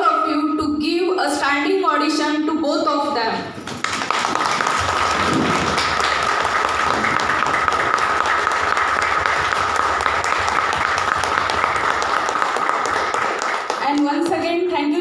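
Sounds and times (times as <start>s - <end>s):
audience applauding: 3.6s - 14.3s.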